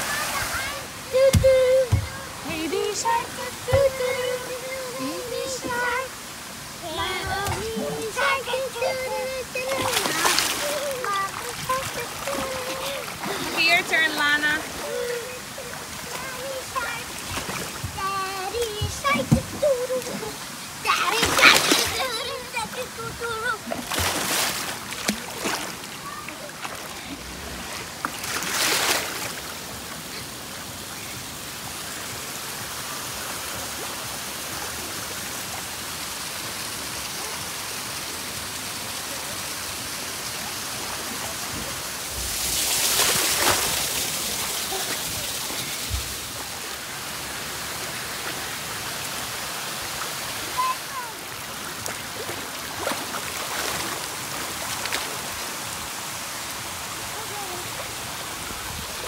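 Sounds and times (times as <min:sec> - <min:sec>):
pool water splashing: 0:00.0 - 0:59.0
child sliding into water: 0:06.9 - 0:13.7, 0:41.6 - 0:46.4.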